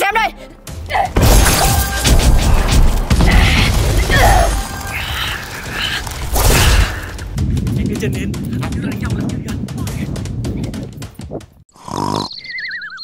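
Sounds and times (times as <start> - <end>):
background music: 0.0 - 11.6
booms and crashing hits: 1.2 - 11.1.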